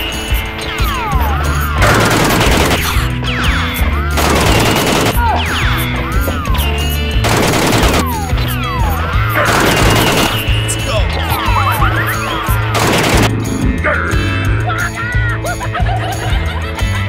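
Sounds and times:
background music with bass line: 0.0s - 17.0s
rapid-fire gunshots: 1.8s - 3.2s, 4.2s - 5.8s, 7.2s - 8.4s, 9.3s - 10.7s, 12.6s - 13.4s.

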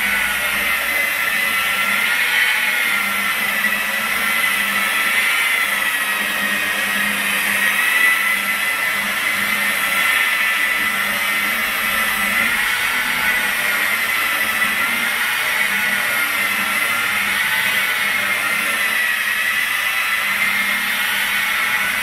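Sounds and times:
polisher motor whining: 0.0s - 22.0s.

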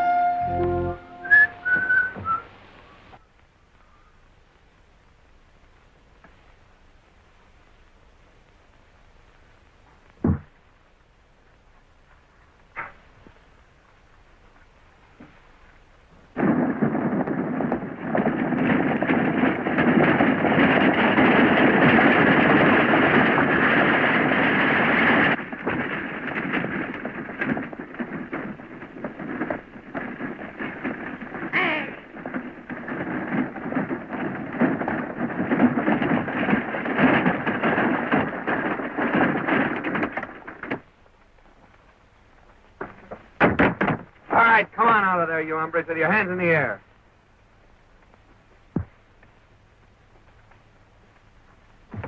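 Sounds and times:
horses galloping: 8.0s - 46.8s
wagon rattling: 16.4s - 40.9s.

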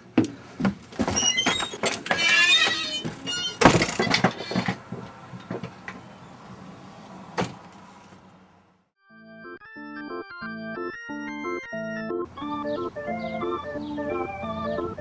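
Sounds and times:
door squeaking: 1.0s - 4.8s
small knocks: 3.1s - 6.0s
electronic organ music: 9.0s - 15.0s.

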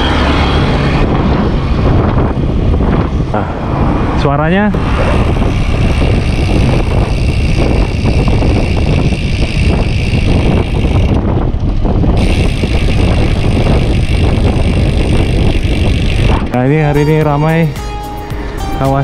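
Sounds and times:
wind rumble on microphone: 0.0s - 17.7s
bicycle freehub buzzing: 4.8s - 17.6s.

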